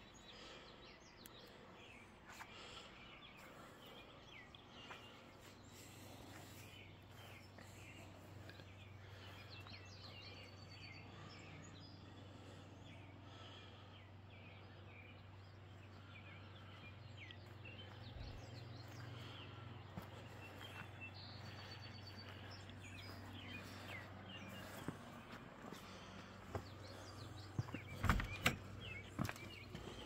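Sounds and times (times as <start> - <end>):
small birds chirping: 0.0 - 30.0
steady low hum: 0.0 - 30.0.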